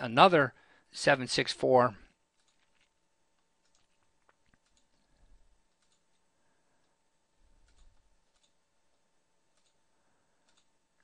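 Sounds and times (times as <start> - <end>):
faint computer mouse clicks: 7.6 - 8.6, 9.5 - 9.8, 10.4 - 10.7.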